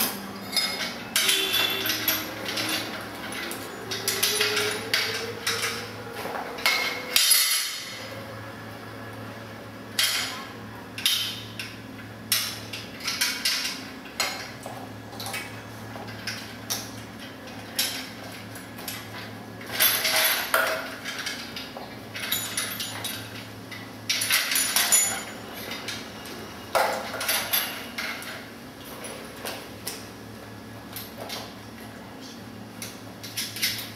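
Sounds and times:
metal parts clinking on tiled floor: 0.0s - 8.0s, 11.0s - 26.1s, 26.7s - 30.0s.

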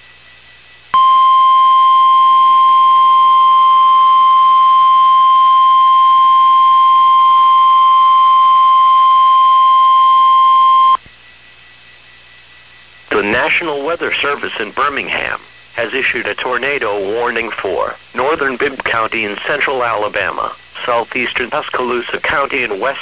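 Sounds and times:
loud steady high alarm tone: 0.0s - 18.4s
faint radio hiss: 13.1s - 23.0s.

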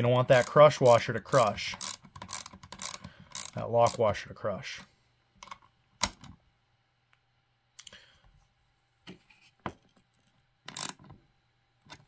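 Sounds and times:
small metal hardware clicking: 0.3s - 4.0s.

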